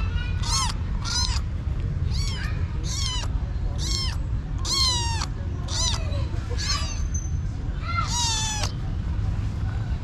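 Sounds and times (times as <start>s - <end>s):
kitten meowing: 0.4s - 6.8s, 7.9s - 8.8s.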